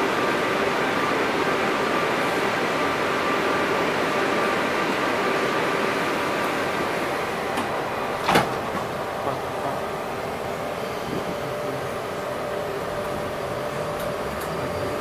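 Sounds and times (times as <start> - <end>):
train hum with faint tones: 0.0 - 15.0
train doors sliding shut: 5.2 - 15.0.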